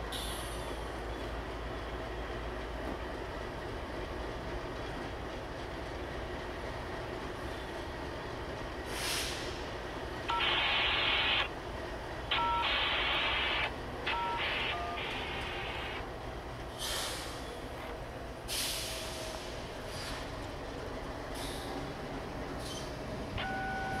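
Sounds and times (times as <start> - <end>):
freight train locomotive rumble: 0.0 - 24.0
short high hisses: 8.9 - 9.6, 16.8 - 17.4
radio static bursts: 10.3 - 11.5, 12.3 - 16.0
two-tone touch-tone beep: 10.3 - 11.5, 12.4 - 16.0, 23.4 - 24.0.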